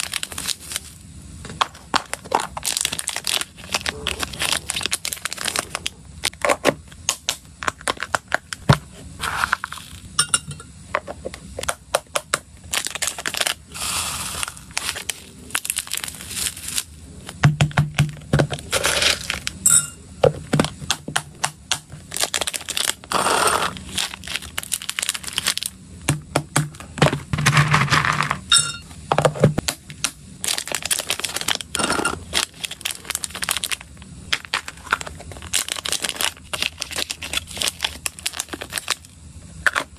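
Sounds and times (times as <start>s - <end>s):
plastic packets crinkling: 0.0s - 1.0s, 1.8s - 6.6s, 12.7s - 17.4s, 18.3s - 19.6s, 20.6s - 25.7s, 30.4s - 39.1s
pellet food rattling in plastic tub: 12.7s - 19.5s, 26.9s - 28.4s.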